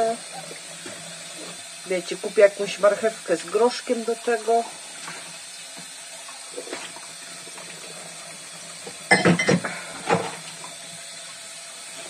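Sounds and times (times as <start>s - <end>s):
dishes clattering in a sink: 8.8s - 10.6s.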